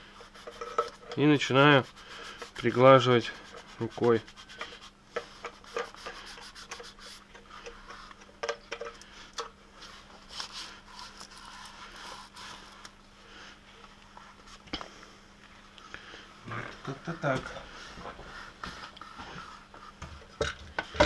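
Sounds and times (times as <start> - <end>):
faint steady hum: 0.0 - 21.0
hand rubbing vinyl film: 0.2 - 7.2.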